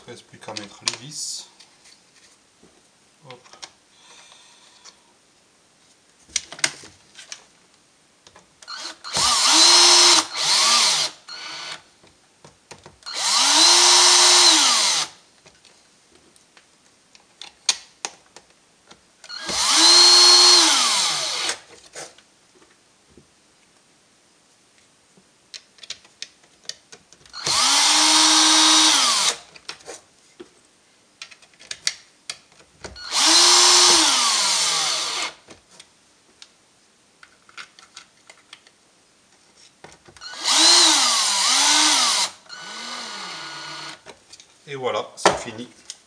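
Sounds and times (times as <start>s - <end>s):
cordless drill motor running: 8.7s - 11.8s, 13.1s - 15.1s, 19.3s - 21.6s, 27.4s - 29.4s, 33.0s - 35.4s, 40.2s - 44.0s.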